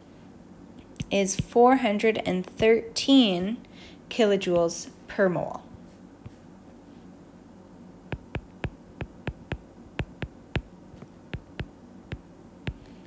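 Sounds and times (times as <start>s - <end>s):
faint steady hum: 0.0s - 13.0s
stylus tapping on glass screen: 8.1s - 12.9s.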